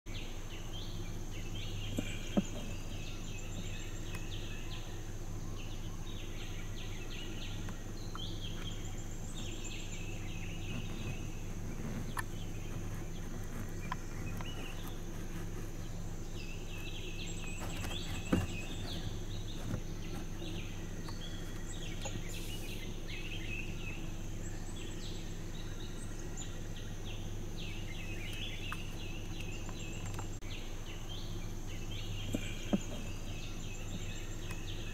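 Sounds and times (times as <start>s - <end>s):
birds chirping: 0.1s - 34.9s
high insect drone: 0.1s - 34.9s
low steady hum: 0.1s - 34.9s.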